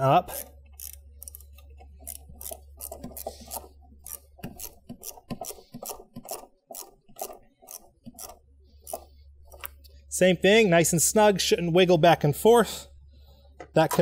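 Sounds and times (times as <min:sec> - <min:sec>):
ratchet wrench clicking: 0:00.3 - 0:09.0.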